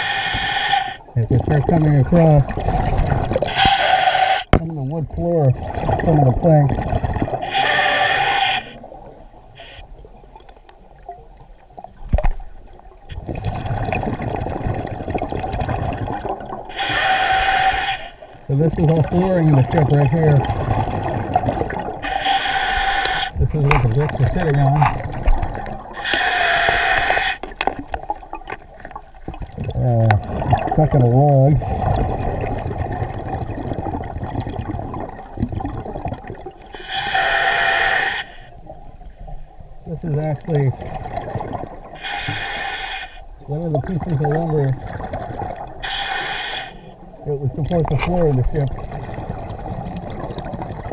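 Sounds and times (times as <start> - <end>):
diver breathing through regulator: 0.0 - 1.0, 7.4 - 8.8, 16.7 - 18.3, 22.0 - 23.4, 25.9 - 27.5, 36.7 - 38.6, 42.0 - 43.3, 45.8 - 47.0
rumble of exhaled bubbles: 1.1 - 3.5, 4.5 - 7.5, 11.8 - 16.8, 18.5 - 22.1, 23.4 - 26.0, 27.5 - 36.8, 38.6 - 42.0, 43.5 - 45.8, 47.0 - 50.9
muffled underwater rumble: 23.1 - 27.1.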